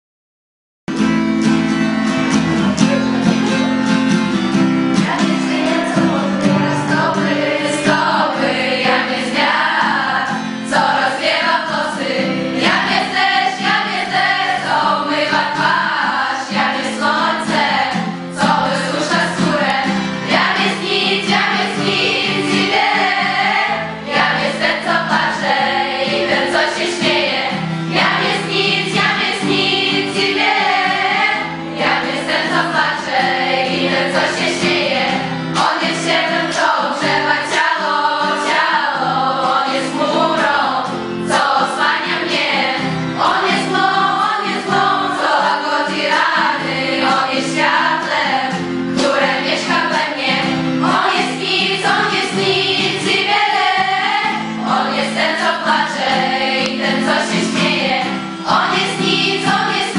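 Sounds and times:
guitar accompaniment: 0.9 - 59.9
women singing in a group: 4.9 - 59.9.

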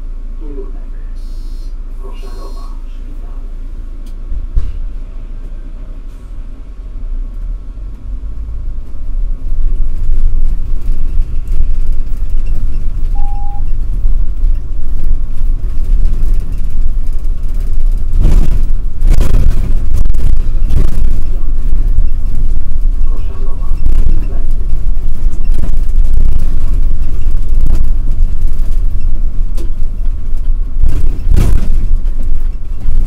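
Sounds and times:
bus engine rumbling: 0.0 - 33.0
short beep: 1.2 - 1.7, 13.1 - 13.8.

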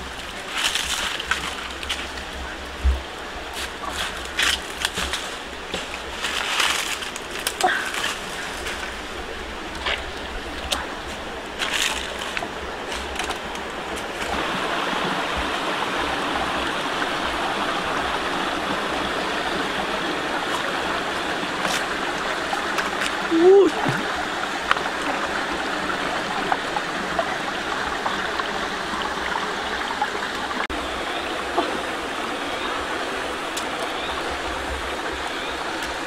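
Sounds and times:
stream water rushing: 0.0 - 36.0
footsteps on dry leaves: 3.6 - 9.0, 11.1 - 13.4.

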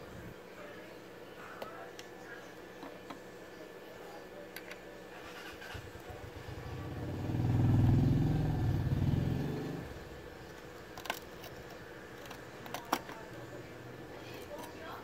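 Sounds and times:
vehicle engine passing by: 6.6 - 10.0.

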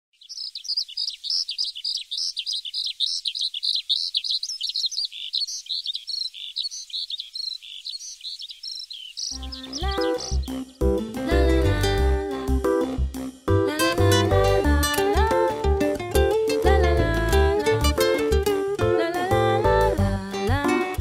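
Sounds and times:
small birds chirping: 0.1 - 11.2
plucked-string music: 9.4 - 21.0.

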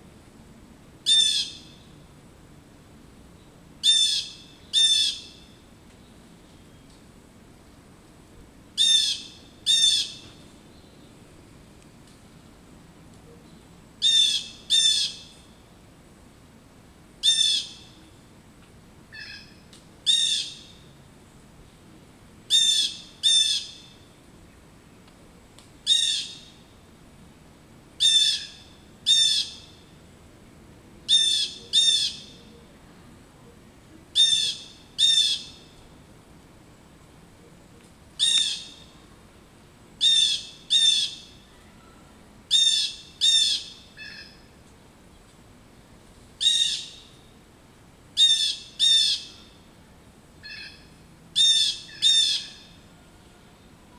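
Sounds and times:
blue jay harsh calls: 1.0 - 1.8, 3.8 - 5.5, 8.8 - 10.2, 14.0 - 15.3, 17.2 - 18.0, 19.1 - 20.8, 22.5 - 24.0, 25.8 - 26.5, 28.0 - 29.8, 31.1 - 32.5, 34.2 - 35.7, 38.2 - 38.9, 40.0 - 41.4, 42.5 - 44.5, 46.4 - 47.2, 48.2 - 49.6, 50.4 - 52.8.

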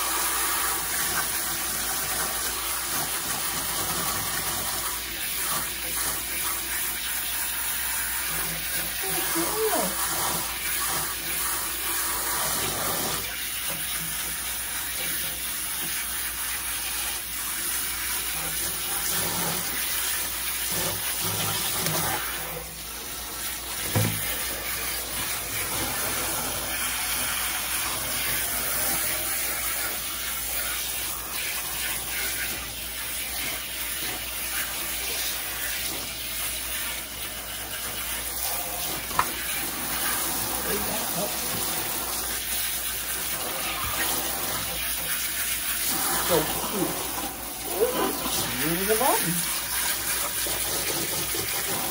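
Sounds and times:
faucet sprayer splashing into sink: 0.0 - 51.9
knock: 23.8 - 24.2.

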